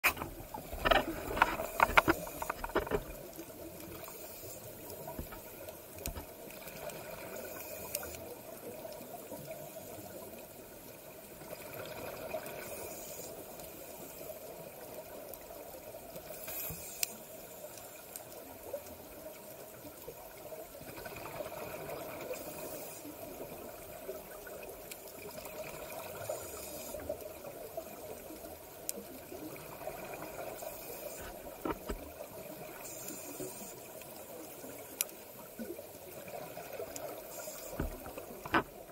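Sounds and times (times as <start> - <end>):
underwater ambience: 0.0 - 38.9
regulator bubbles hissing: 29.2 - 38.9.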